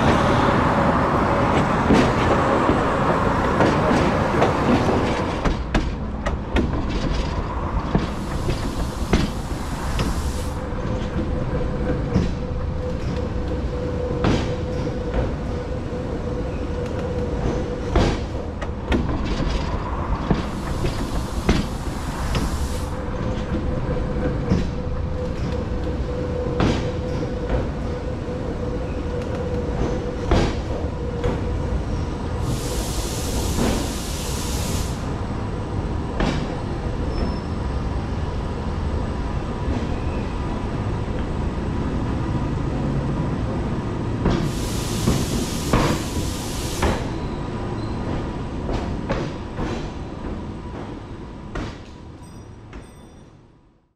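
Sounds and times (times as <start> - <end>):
electric train rumbling: 0.0 - 53.2
hisses: 8.0 - 10.7, 20.3 - 23.0, 32.4 - 35.2, 44.4 - 47.2.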